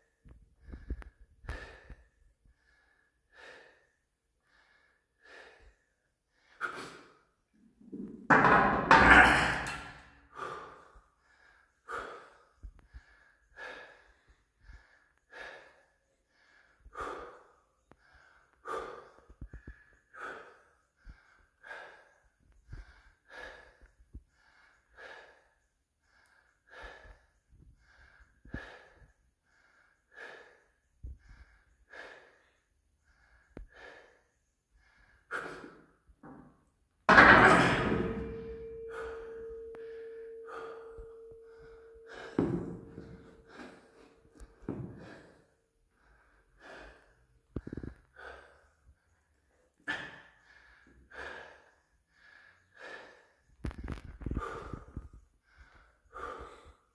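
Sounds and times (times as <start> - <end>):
man breathing heavily: 0.0 - 7.9, 9.6 - 36.7, 37.7 - 56.9
metal bar clanging against rack: 8.3 - 10.0, 37.1 - 43.4.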